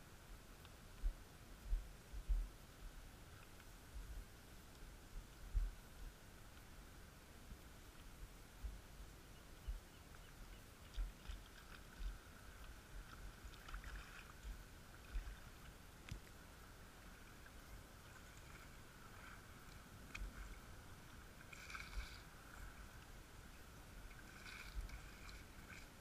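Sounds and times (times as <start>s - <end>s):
faint steady hiss: 0.0s - 26.0s
muffled low thuds: 1.0s - 2.6s, 5.5s - 5.8s.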